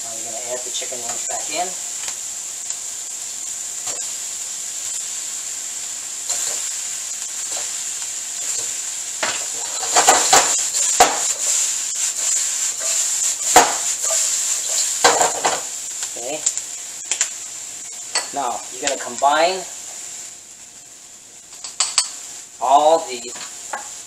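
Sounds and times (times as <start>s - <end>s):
vegetables sizzling in a wok: 0.0s - 24.0s
wok stirring knocks and clatter: 8.4s - 15.7s.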